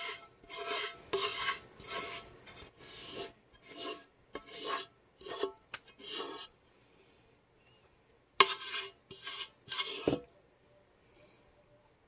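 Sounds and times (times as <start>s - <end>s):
wooden spoon scraping a pot: 0.0s - 6.6s, 8.4s - 10.3s.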